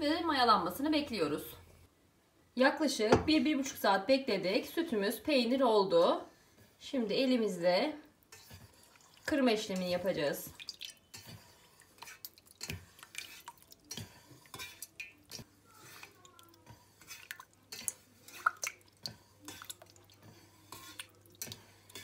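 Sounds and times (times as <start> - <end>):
wet squishing of cheese curd: 8.2 - 22.0
dripping: 8.3 - 15.4, 16.0 - 22.0.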